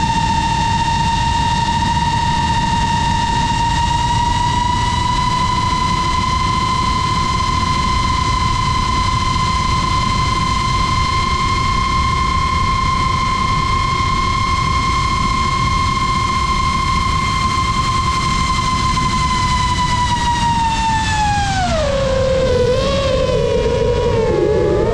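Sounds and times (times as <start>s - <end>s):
drone motors whining: 16.6s - 24.9s.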